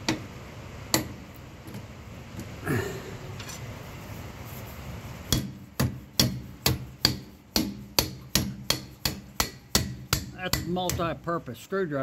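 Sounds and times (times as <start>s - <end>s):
hammer striking metal bolt: 5.3s - 11.1s.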